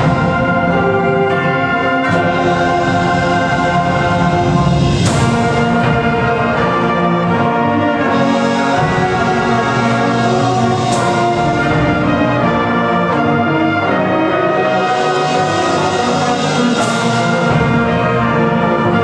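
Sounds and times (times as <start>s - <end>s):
concert band playing chords: 0.0s - 19.0s.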